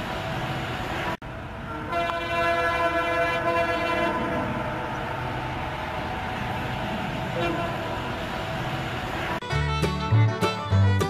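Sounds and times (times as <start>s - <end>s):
steady background noise: 0.0s - 9.5s
train horn blast: 1.7s - 4.6s, 7.3s - 8.1s.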